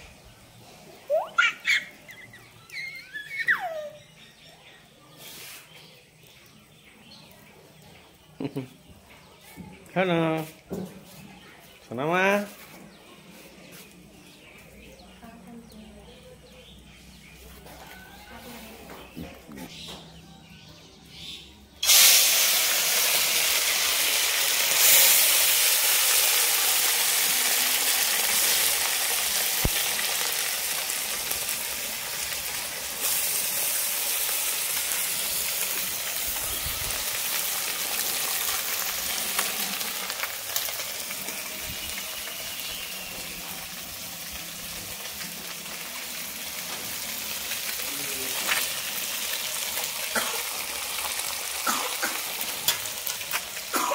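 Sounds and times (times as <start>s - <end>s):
fish sizzling in hot oil: 21.8s - 53.9s.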